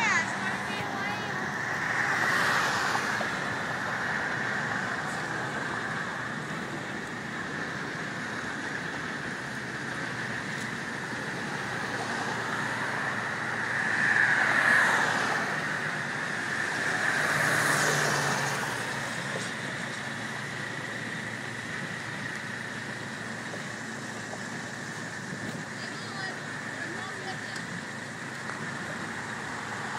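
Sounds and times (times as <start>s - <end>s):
vehicle passing: 0.0s - 9.3s, 10.0s - 21.1s.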